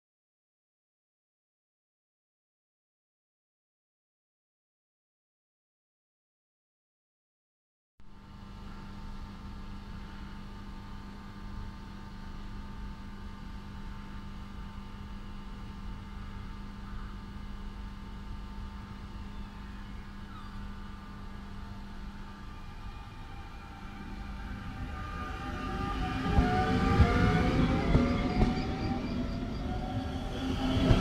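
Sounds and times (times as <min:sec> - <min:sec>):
electric train equipment humming: 0:08.1 - 0:31.0
high steady whining tones: 0:17.3 - 0:31.0.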